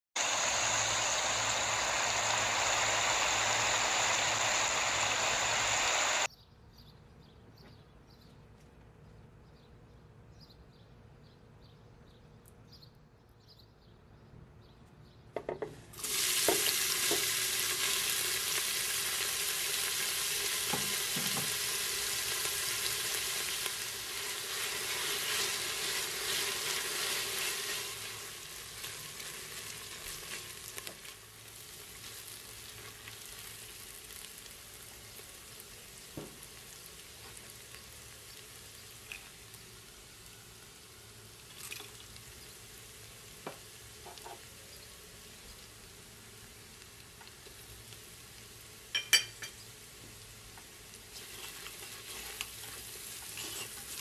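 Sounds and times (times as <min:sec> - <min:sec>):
loud steady hiss: 0:00.0 - 0:06.3, 0:15.9 - 0:32.7
onion sizzling in hot oil: 0:00.2 - 0:06.3, 0:15.9 - 0:54.0.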